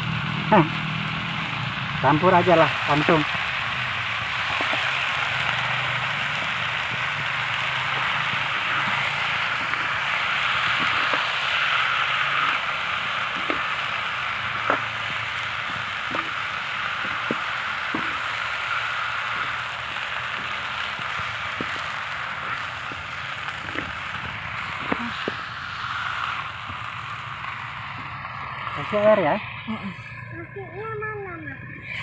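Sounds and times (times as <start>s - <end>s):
vegetables sizzling in oil: 0.0s - 32.0s.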